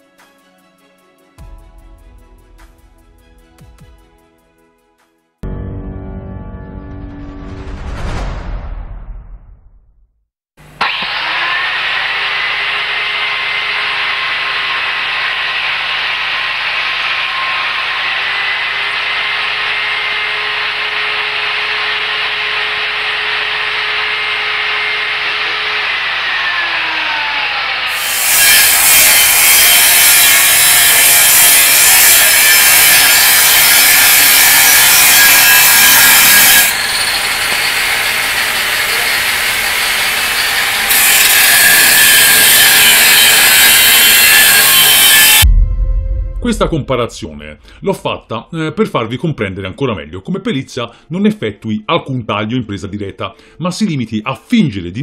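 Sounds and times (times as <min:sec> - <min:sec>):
angle grinder running free: 0:10.6 - 0:45.5
grinder cutting metal tube: 0:10.6 - 0:45.5.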